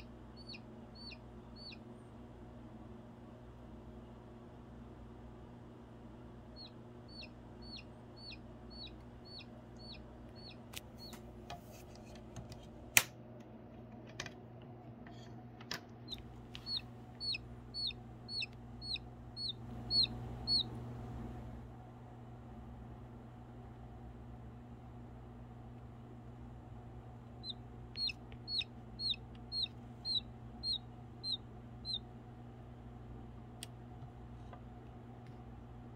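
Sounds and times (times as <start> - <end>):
baby chick peeping: 0.0 - 1.9, 6.5 - 11.3, 16.0 - 21.4, 27.3 - 32.2.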